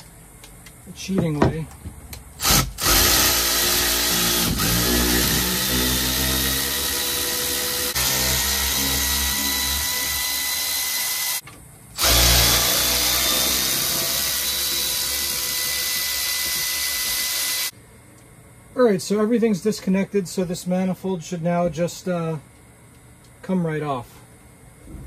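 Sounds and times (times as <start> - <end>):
cordless drill whining: 2.4 - 11.4, 12.0 - 17.7.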